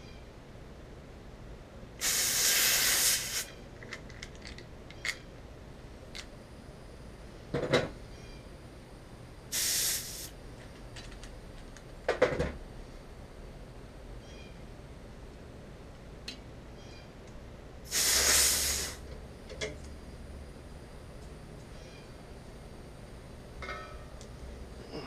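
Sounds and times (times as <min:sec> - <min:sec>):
refrigerant hissing from hose: 0:02.0 - 0:03.5, 0:09.5 - 0:10.4, 0:17.8 - 0:19.1.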